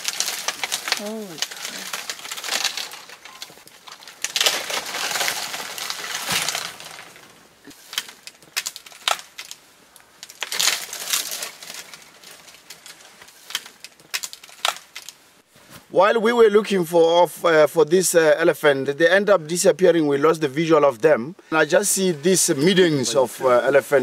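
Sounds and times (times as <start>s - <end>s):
branches snapping: 0.0s - 15.2s
leaves rustling: 0.0s - 16.1s.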